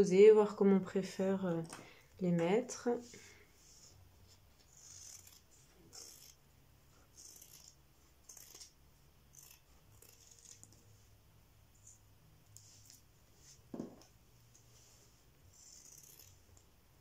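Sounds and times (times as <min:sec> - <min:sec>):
scissors snipping fabric: 0:04.7 - 0:06.4, 0:07.1 - 0:10.8, 0:15.6 - 0:16.7.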